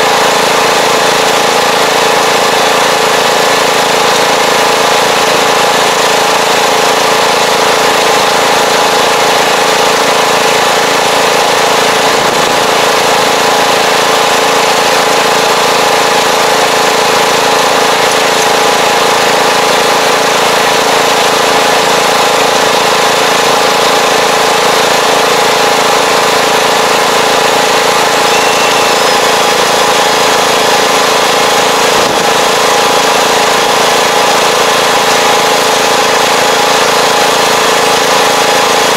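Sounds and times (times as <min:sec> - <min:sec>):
tractor engine running: 0:00.0 - 0:38.9.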